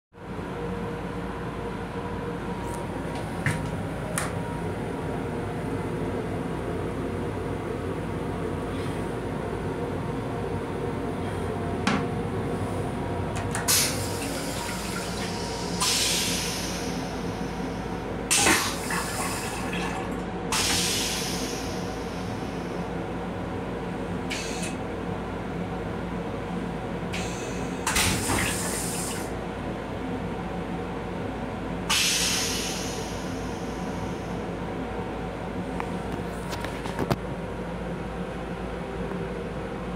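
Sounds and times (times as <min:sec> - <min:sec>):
train low rumble and hum: 0:00.1 - 0:39.9
toilet rinse spray hissing: 0:13.7 - 0:17.7, 0:18.3 - 0:22.3, 0:27.2 - 0:29.3, 0:31.9 - 0:33.7
water rushing into toilet bowl: 0:13.8 - 0:16.5.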